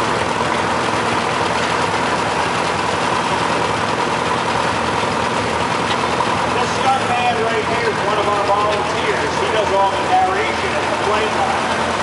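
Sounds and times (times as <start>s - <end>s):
tractor engines running: 0.0s - 12.0s.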